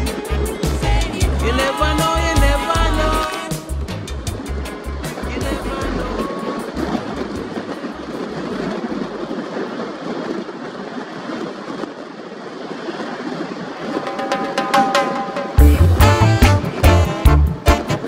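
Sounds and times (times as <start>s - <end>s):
music track: 0.0s - 6.3s, 13.9s - 18.0s
reggae bass beat: 0.0s - 7.0s, 14.3s - 18.0s.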